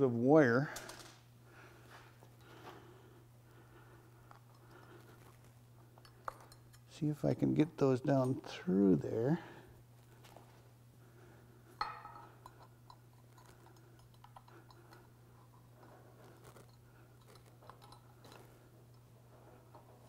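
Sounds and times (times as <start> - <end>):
steady low hum: 0.0 - 20.0
small clicks and handling noises: 15.7 - 19.0.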